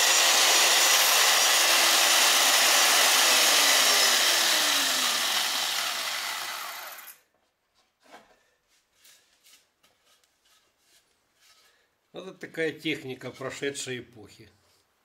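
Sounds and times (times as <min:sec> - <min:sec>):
mortising machine motor: 0:00.0 - 0:07.2.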